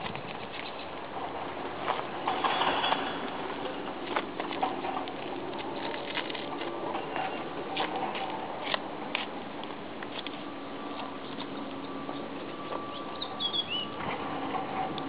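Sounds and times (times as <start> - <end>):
ostriches pecking and stepping: 0.0 - 15.0.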